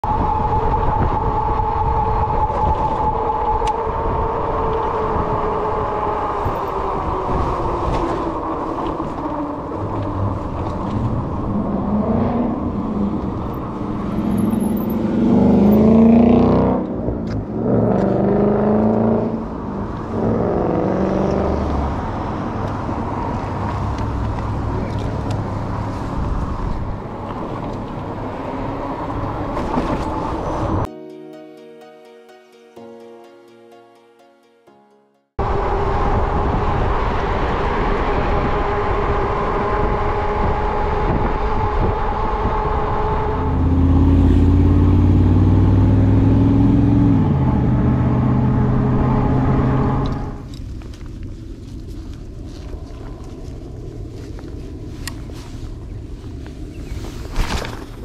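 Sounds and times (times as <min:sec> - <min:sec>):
wind and tyre noise: 0:00.0 - 0:30.9, 0:35.4 - 0:58.0
car traffic passing: 0:00.1 - 0:30.9, 0:35.4 - 0:57.2.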